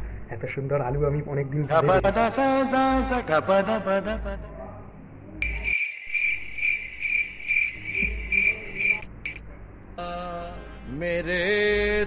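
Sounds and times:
cricket chirps: 5.4 - 9.4.

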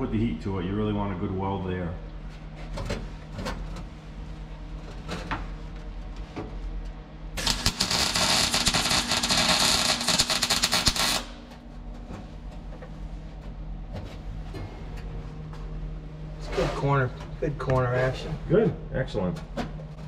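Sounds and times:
welder crackling sizzle: 7.4 - 11.5.

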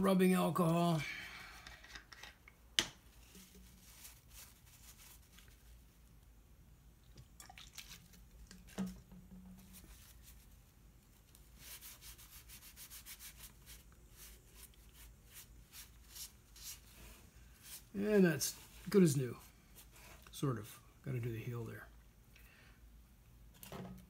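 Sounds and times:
paper towel rubbing wood: 11.5 - 20.3.

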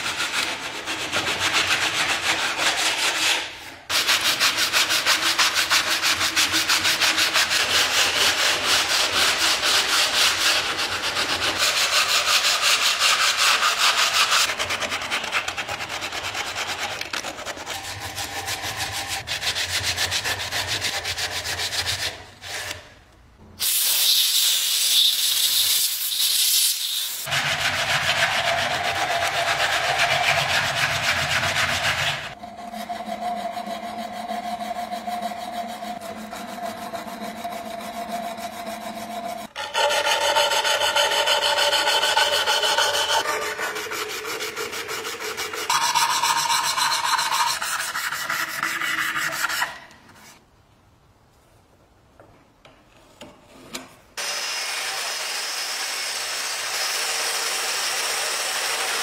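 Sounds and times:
abrasive strip rasping on wood: 27.2 - 49.8.

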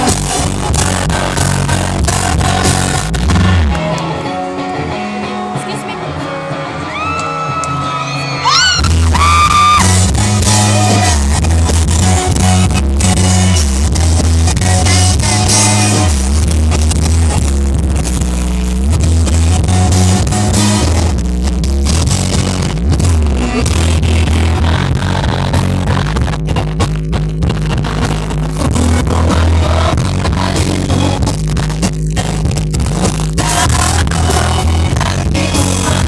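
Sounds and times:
person singing: 0.0 - 12.4, 27.9 - 32.5, 33.2 - 36.0
heavy bass: 0.0 - 36.0
rock band playing live: 0.0 - 36.0.

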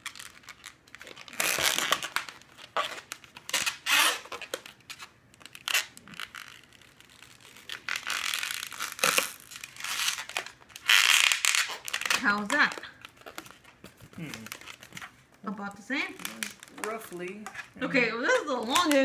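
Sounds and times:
balloon squeaking and rubbing: 0.0 - 15.2.

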